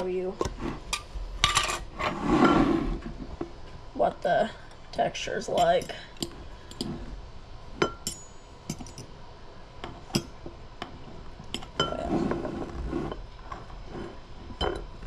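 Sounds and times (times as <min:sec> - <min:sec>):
scraping rustling noise: 0:00.4 - 0:03.4, 0:11.9 - 0:14.6.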